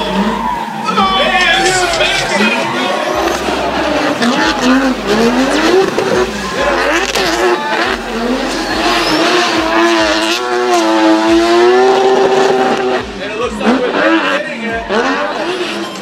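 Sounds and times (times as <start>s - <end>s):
tyres squealing: 0.0s - 11.1s
car engine revving: 0.0s - 16.0s.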